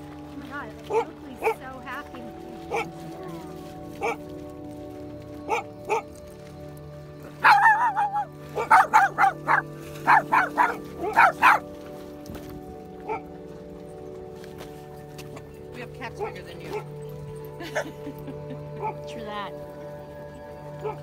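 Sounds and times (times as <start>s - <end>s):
small dog barking: 0.9s - 1.6s, 2.7s - 2.9s, 4.0s - 4.2s, 5.5s - 6.1s, 7.4s - 11.7s, 13.0s - 13.3s, 20.8s - 21.0s
dog yelping: 2.7s - 3.0s, 4.0s - 4.2s, 5.5s - 6.1s, 7.4s - 11.7s, 13.0s - 13.3s, 20.8s - 21.0s.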